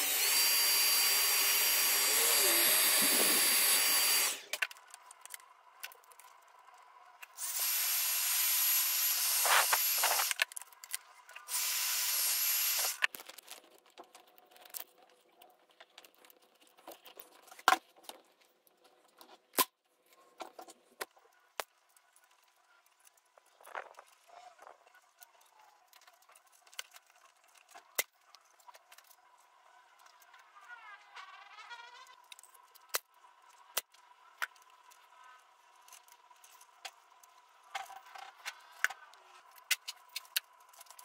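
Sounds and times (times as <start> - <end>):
heat gun blowing air: 0.0 - 4.5, 7.4 - 10.4, 11.5 - 13.0.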